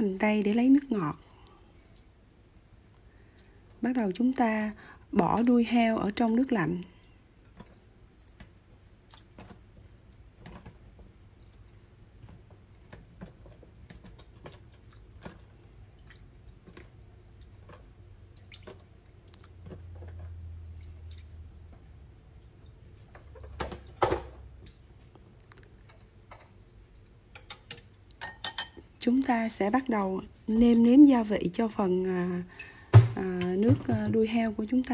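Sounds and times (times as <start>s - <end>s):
wet plops and splashes in water: 18.2s - 19.9s.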